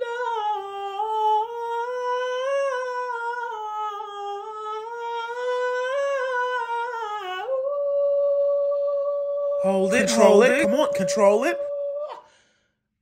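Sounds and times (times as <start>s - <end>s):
man singing long high note: 9.4s - 12.2s.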